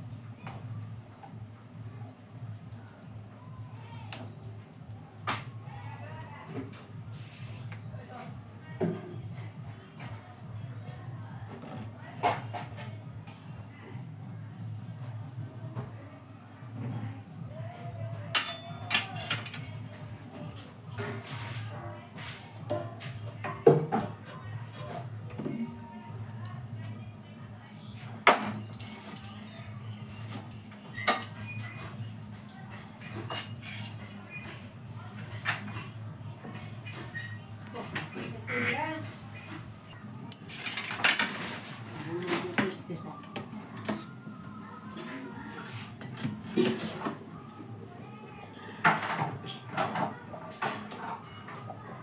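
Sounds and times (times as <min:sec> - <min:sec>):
kitchenware clinks: 0:18.3 - 0:19.6, 0:50.8 - 0:51.7
metal cookware clanking: 0:18.3 - 0:19.6.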